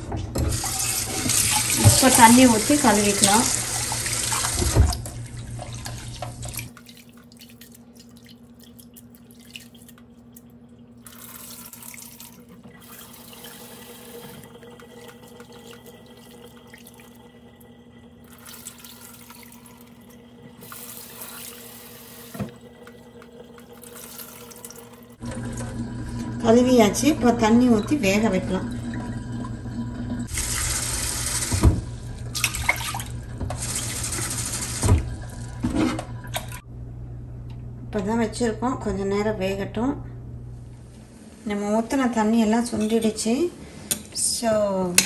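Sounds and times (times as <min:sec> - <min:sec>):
water sloshing and dripping: 0:00.0 - 0:26.4, 0:27.8 - 0:36.7.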